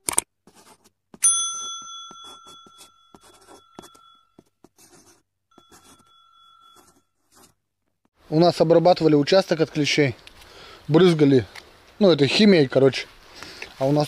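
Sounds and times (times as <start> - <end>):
marker scratching on paper: 0.4 - 1.0, 2.1 - 7.6
bright bell ding: 1.2 - 4.3, 5.6 - 6.9.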